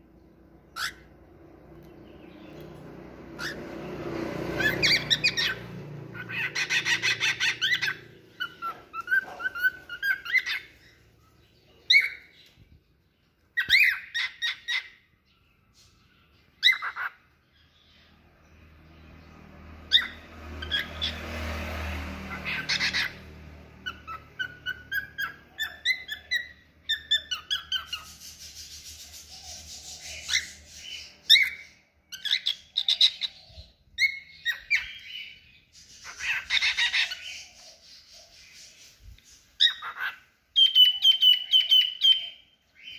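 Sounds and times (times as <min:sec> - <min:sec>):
cockatiels chirping and whistling: 0:00.7 - 0:01.1, 0:03.4 - 0:03.7, 0:04.6 - 0:11.0, 0:11.9 - 0:12.5, 0:13.6 - 0:15.1, 0:15.8 - 0:17.2, 0:19.9 - 0:21.2, 0:22.3 - 0:23.2, 0:23.8 - 0:42.9.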